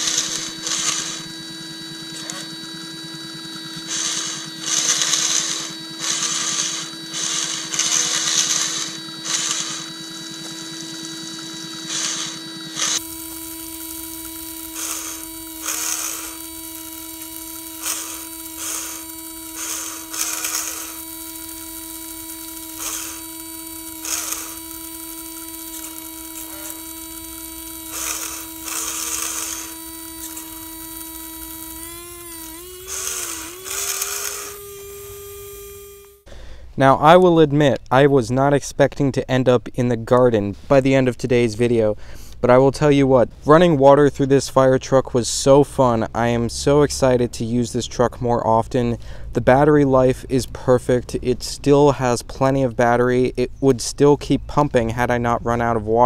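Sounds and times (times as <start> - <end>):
electric water pump whining: 0.0 - 36.3.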